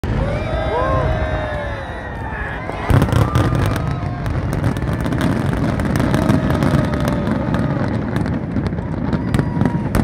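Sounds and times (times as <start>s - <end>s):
fireworks booming: 0.0s - 10.0s
fireworks cracking: 2.6s - 10.0s.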